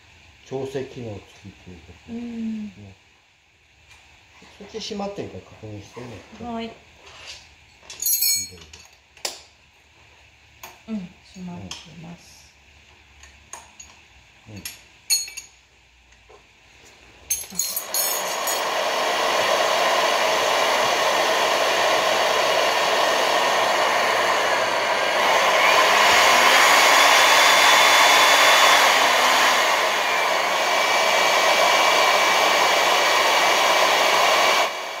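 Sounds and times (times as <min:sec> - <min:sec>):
drill motor running: 0:17.8 - 0:35.0.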